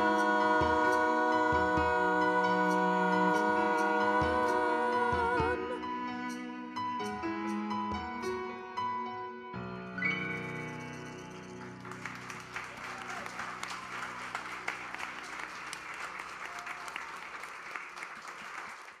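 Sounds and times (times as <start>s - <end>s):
piano and cello chord: 0.0s - 12.6s
audience applauding: 11.3s - 19.0s.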